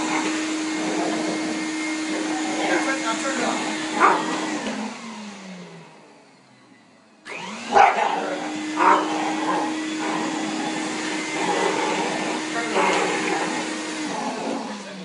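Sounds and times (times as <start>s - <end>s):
vacuum cleaner motor: 0.0s - 15.0s
dog barking: 3.9s - 4.6s, 7.6s - 10.7s.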